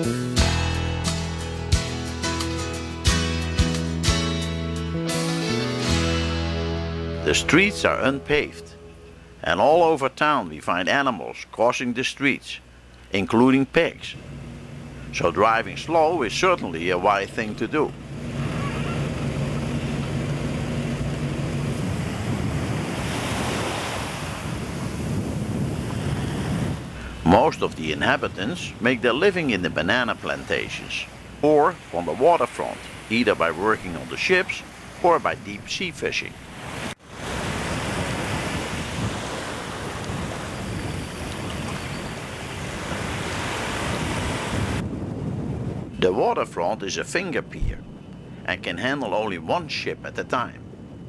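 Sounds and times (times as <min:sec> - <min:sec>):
sea waves washing: 0:05.1 - 0:45.9
low engine hum: 0:05.8 - 0:09.6, 0:14.0 - 0:23.2
wind buffeting microphone: 0:14.2 - 0:33.1, 0:36.3 - 0:49.4, 0:50.5 - 0:51.0.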